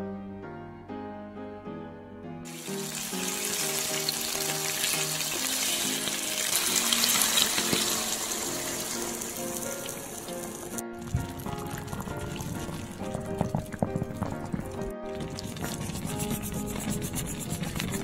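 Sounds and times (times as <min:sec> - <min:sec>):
background music: 0:00.0 - 0:18.0
food sizzling in a frying pan: 0:02.5 - 0:12.1.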